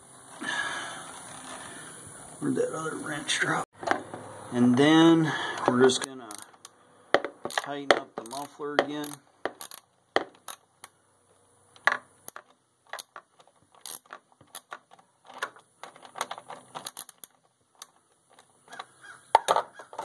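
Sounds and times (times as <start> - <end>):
socket ratchet clicking: 6.0 - 6.8, 7.4 - 11.0, 11.8 - 18.9.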